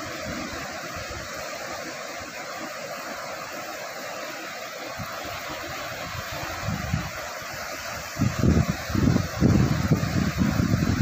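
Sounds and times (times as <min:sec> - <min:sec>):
ocean surf breaking: 0:00.0 - 0:11.0
wind on microphone: 0:04.9 - 0:11.0.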